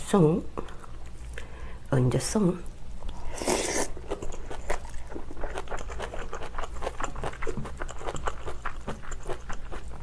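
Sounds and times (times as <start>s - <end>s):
wet crunchy chewing: 3.0s - 10.0s
slurping from a spoon: 3.2s - 4.2s.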